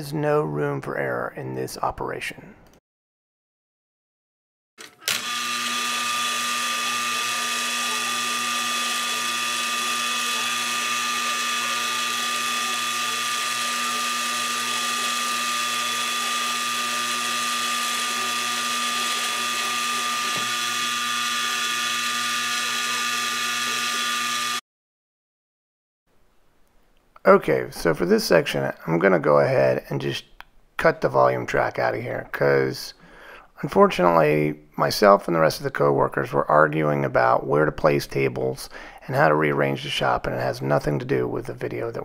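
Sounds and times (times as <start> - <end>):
electric machine motor whine: 5.0 - 24.6.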